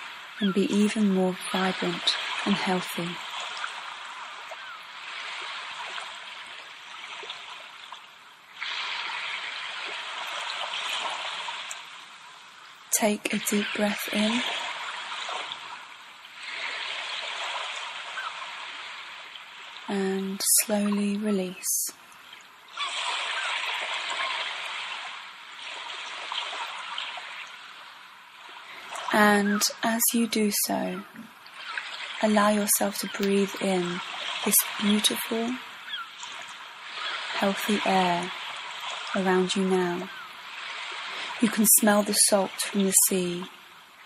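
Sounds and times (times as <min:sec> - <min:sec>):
ocean waves on shore: 0:00.0 - 0:44.0
running water rushing: 0:00.0 - 0:44.0.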